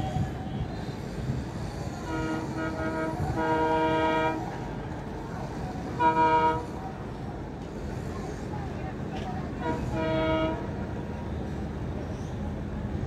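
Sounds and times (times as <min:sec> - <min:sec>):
city traffic: 0:00.0 - 0:13.0
train horn blasts: 0:01.9 - 0:04.7, 0:05.9 - 0:06.8, 0:09.6 - 0:10.8.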